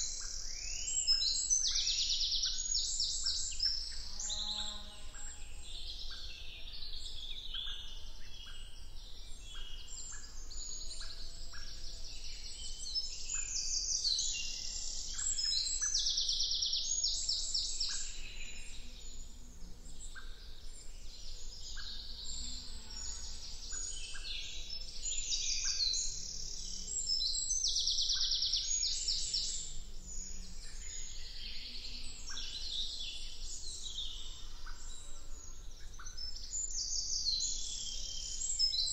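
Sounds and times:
songbirds singing and calling: 0:00.0 - 0:38.9.

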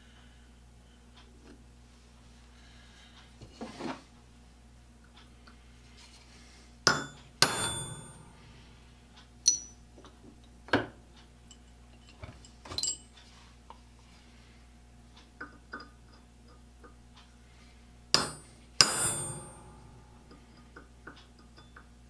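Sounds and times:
hammer striking steel punch: 0:06.9 - 0:08.4, 0:09.5 - 0:09.8, 0:18.2 - 0:20.0
steel tools clinking: 0:09.4 - 0:09.8, 0:11.5 - 0:13.2.

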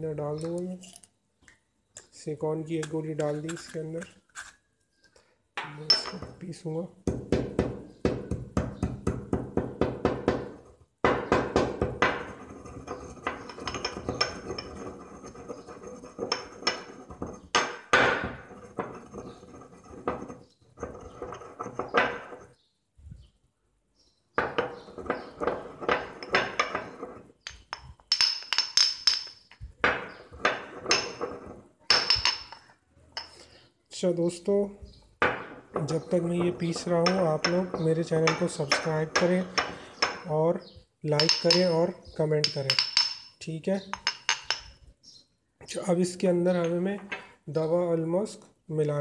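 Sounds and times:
pestle knocking against bowl: 0:07.1 - 0:10.5
pestle scraping grinds: 0:07.1 - 0:22.5, 0:24.4 - 0:28.5, 0:35.4 - 0:40.3.

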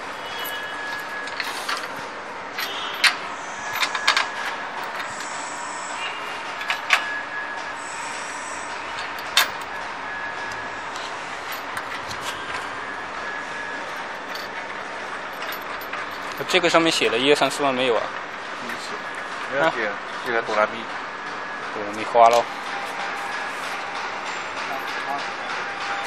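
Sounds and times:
steady background noise: 0:00.0 - 0:26.0
metallic clinks and knocks: 0:00.3 - 0:02.0, 0:02.6 - 0:05.3, 0:09.0 - 0:09.9, 0:11.0 - 0:12.5, 0:13.8 - 0:16.8, 0:24.6 - 0:25.3.

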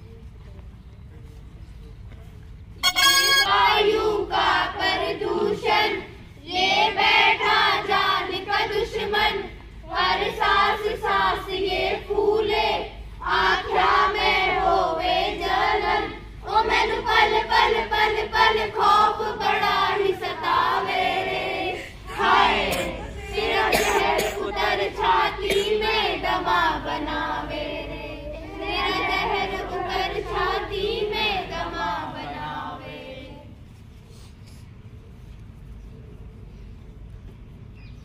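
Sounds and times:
children singing in unison: 0:03.5 - 0:33.4.

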